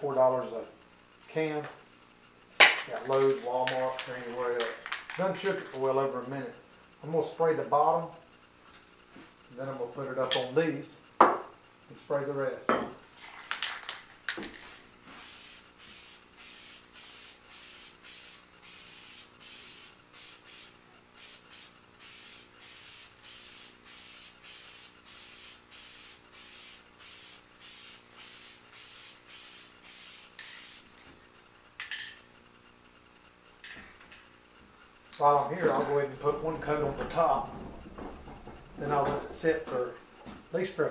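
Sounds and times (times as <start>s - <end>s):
aerosol can spraying bursts: 15.1s - 30.9s.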